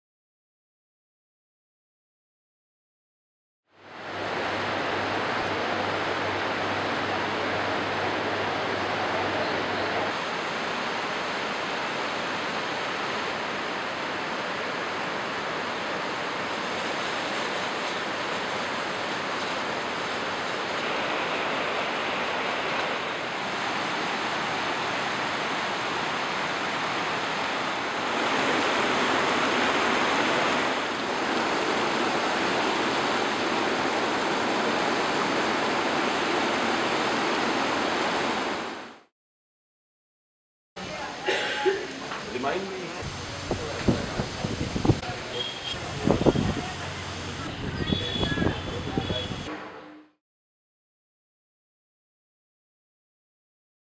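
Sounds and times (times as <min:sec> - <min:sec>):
whitewater rapids rushing: 0:03.8 - 0:39.0.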